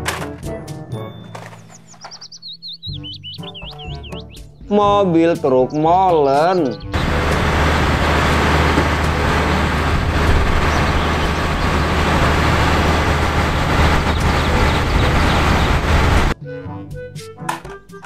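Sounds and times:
diesel truck engine humming: 2.3 - 4.5, 6.6 - 16.4.

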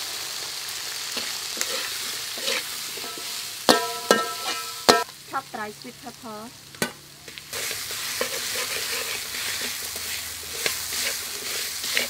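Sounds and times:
peas sizzling in oil: 0.0 - 12.0
ladle stirring in wok: 1.2 - 5.0, 6.8 - 12.0
ladle clanking against wok: 2.4 - 5.1.

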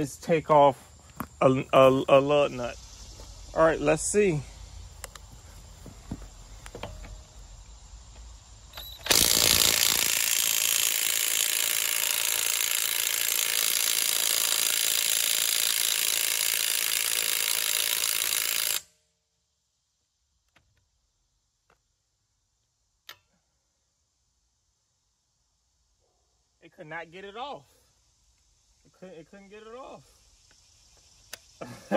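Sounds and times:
impact wrench hammering: 9.1 - 15.7.

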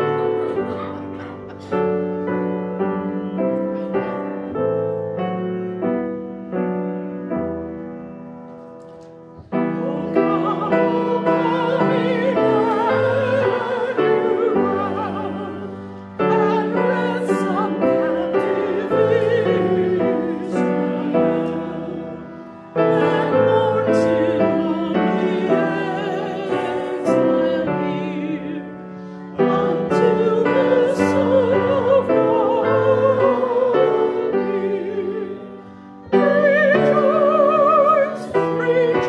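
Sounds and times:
piano playing slow chords: 0.0 - 39.0
solo melody with wide vibrato: 9.4 - 39.0.

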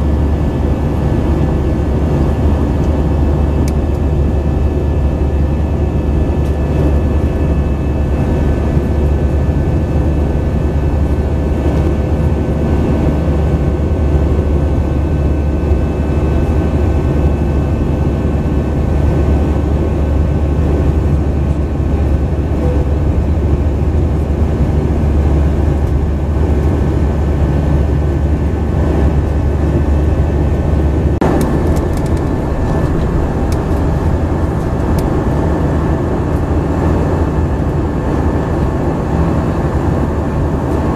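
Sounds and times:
jet engine rumble in cabin: 0.0 - 40.9
engine whining tones: 31.0 - 38.4.

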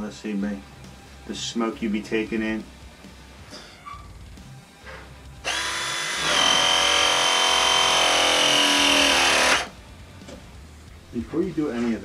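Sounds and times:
press tool motor whining: 5.4 - 9.7.

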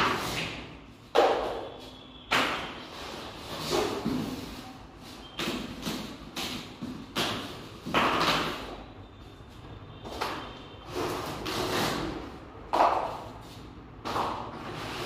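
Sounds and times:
rubber mats scraping on floor: 13.1 - 15.0.

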